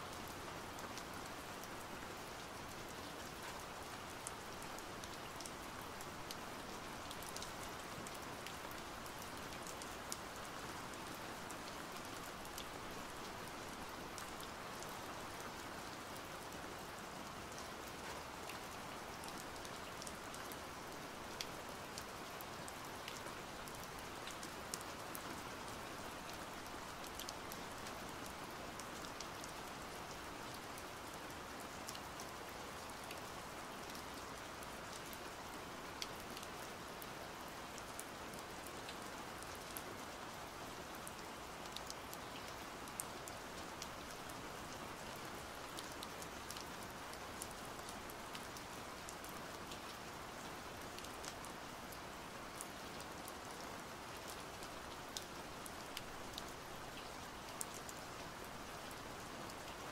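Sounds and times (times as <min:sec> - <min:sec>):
steady rain hiss: 0:00.0 - 0:59.9.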